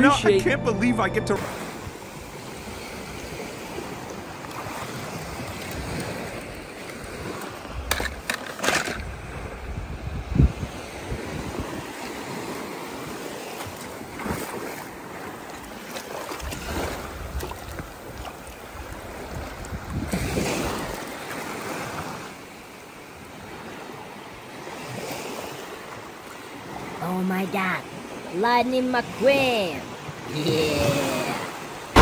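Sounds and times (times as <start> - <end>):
water rushing: 0.0 - 9.6, 26.0 - 32.0.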